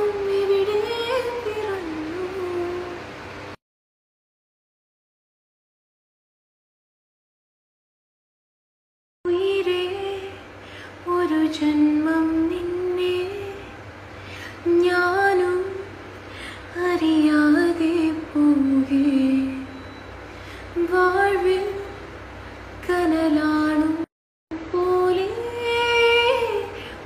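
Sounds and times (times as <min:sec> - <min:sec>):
woman singing unaccompanied: 0:00.0 - 0:03.1, 0:09.3 - 0:13.8, 0:14.6 - 0:16.0, 0:16.7 - 0:19.8, 0:20.7 - 0:22.1, 0:22.8 - 0:27.0.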